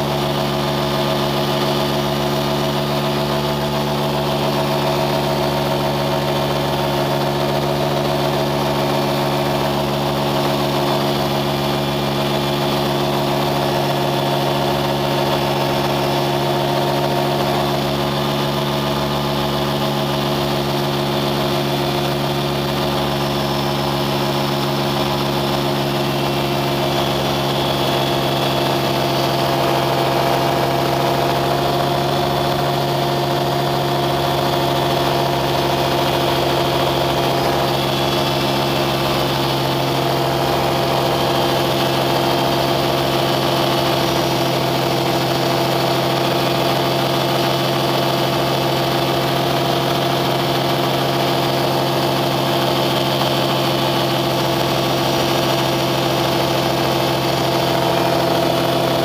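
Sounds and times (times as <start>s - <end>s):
engine running steadily: 0.0s - 59.0s.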